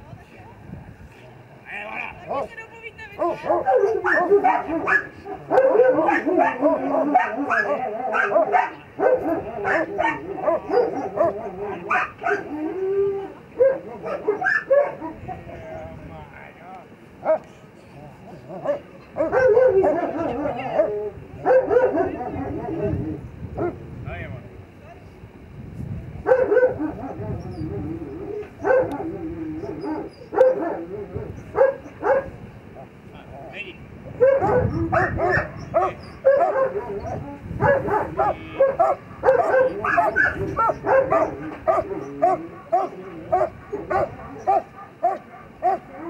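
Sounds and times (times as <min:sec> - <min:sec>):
dog barking: 0:03.2 - 0:12.6, 0:13.6 - 0:15.4, 0:17.2 - 0:17.5, 0:18.5 - 0:22.9, 0:26.2 - 0:27.3, 0:28.6 - 0:32.4, 0:34.2 - 0:46.0
dog yipping and whining: 0:13.6 - 0:15.1, 0:38.8 - 0:45.8.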